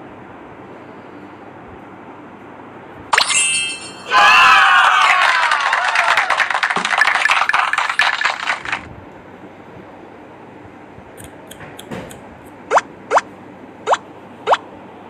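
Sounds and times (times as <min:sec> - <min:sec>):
dense crackling noise: 0:06.1 - 0:08.9
short rising blips: 0:12.6 - 0:14.6.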